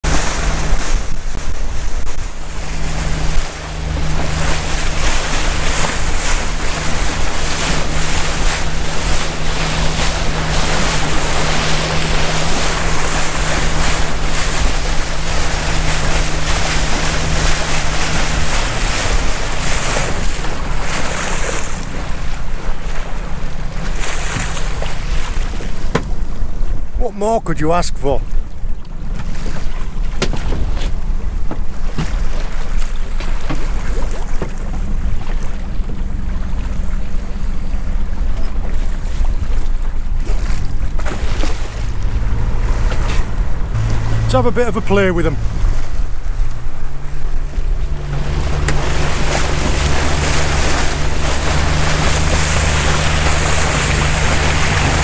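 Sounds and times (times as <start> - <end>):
wind noise on microphone: 0.0 - 26.9, 37.3 - 44.4
motorboat engine running: 0.0 - 55.0
water rushing past hull: 0.0 - 55.0.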